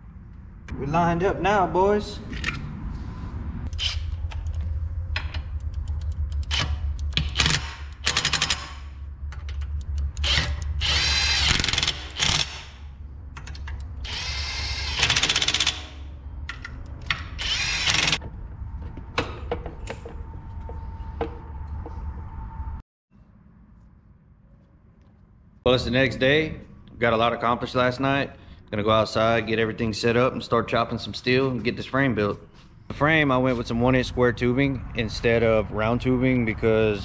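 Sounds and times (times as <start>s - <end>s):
power drill whirring: 10.2s - 12.6s, 14.0s - 15.8s, 17.4s - 18.2s
knocks of tools and parts: 18.2s - 22.0s.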